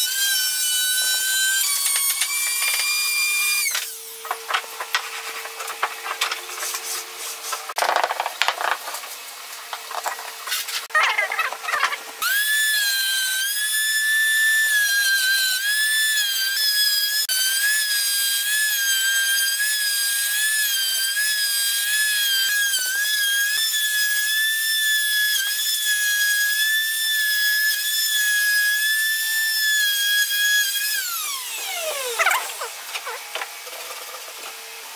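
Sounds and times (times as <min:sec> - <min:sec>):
router whining: 0:00.0 - 0:06.6, 0:29.9 - 0:34.9
router winding down: 0:31.2 - 0:33.6.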